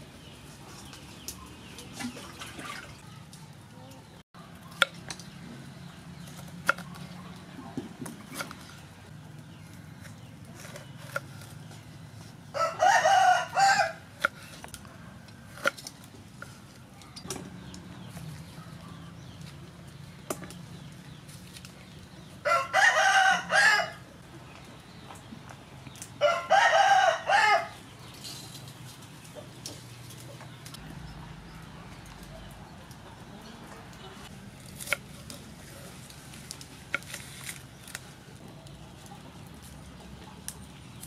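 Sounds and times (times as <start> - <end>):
rooster crowing: 12.5 - 14.0, 22.4 - 24.0, 26.2 - 27.8.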